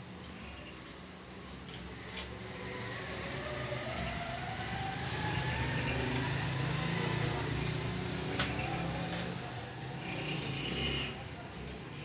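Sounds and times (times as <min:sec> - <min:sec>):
low mechanical drone with rising whine: 0:02.0 - 0:10.0.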